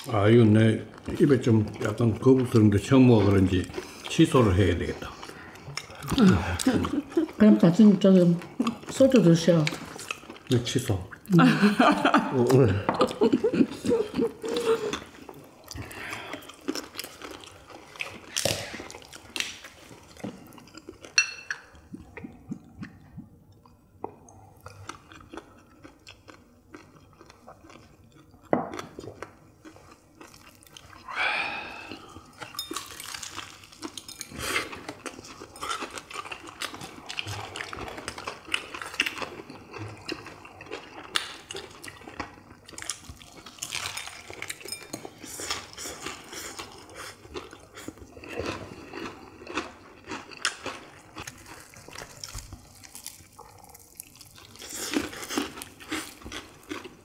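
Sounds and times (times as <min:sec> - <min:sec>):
people chewing and biting food: 0:00.0 - 0:11.4, 0:12.3 - 0:57.0
dishes clinking: 0:21.1 - 0:21.8, 0:44.0 - 0:45.2.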